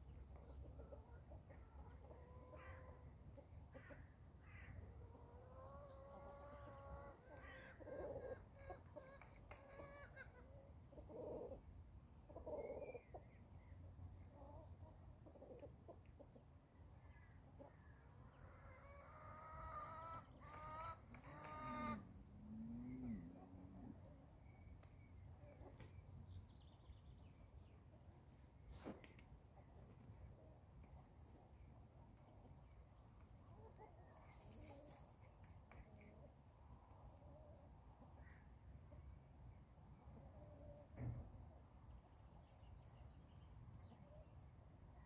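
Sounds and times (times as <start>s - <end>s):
chickens clucking: 0.2s - 3.9s, 5.0s - 13.6s, 14.2s - 16.6s, 17.4s - 26.3s, 33.2s - 36.4s.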